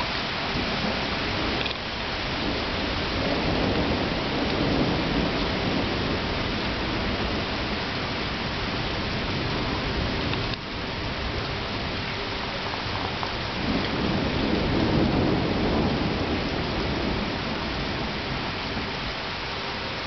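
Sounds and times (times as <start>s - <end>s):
rolling thunder: 0.0s - 19.2s
heavy rain falling: 0.0s - 20.0s.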